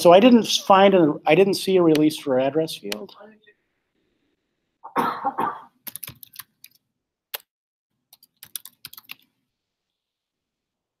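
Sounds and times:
person coughing: 4.8 - 5.8
typing on a computer keyboard: 5.8 - 6.8, 8.1 - 9.3.

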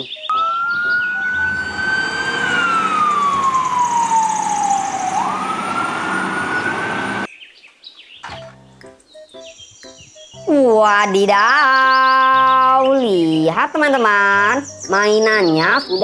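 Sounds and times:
fire engine siren wailing: 0.0 - 7.3.

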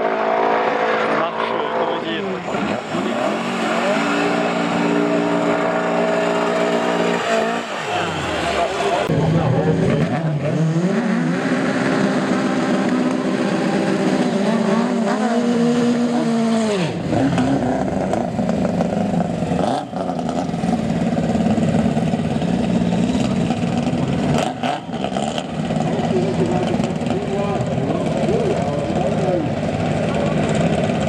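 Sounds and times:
car engines revving: 0.0 - 31.0
rough engine noise: 0.0 - 31.0.

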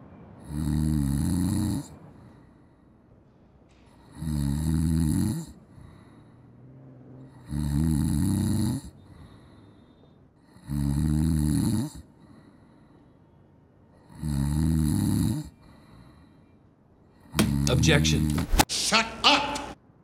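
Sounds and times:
man snoring: 0.4 - 2.3, 3.9 - 9.7, 10.4 - 12.6, 14.0 - 16.2, 17.3 - 18.4.

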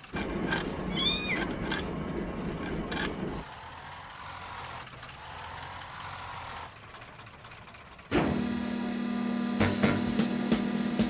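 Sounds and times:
vehicle engine running low: 0.0 - 11.0
kitten mewing: 0.9 - 1.5.

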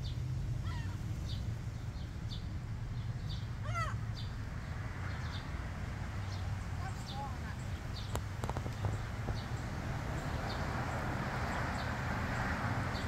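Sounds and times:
gull calls: 0.6 - 1.0, 3.6 - 4.0.

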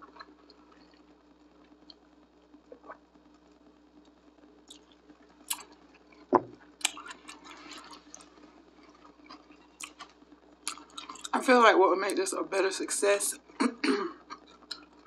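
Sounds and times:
wet chewing with smacks: 6.8 - 11.3.

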